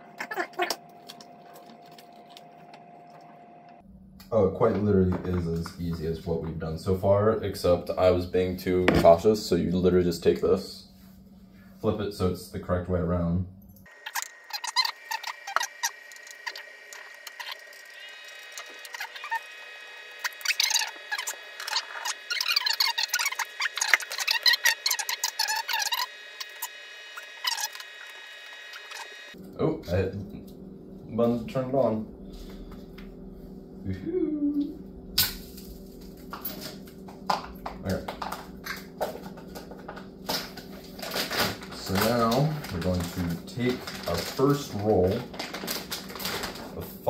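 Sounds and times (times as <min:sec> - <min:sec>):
steady low hum: 0:00.0 - 0:47.0
plastic wrapping rustling: 0:39.2 - 0:47.0.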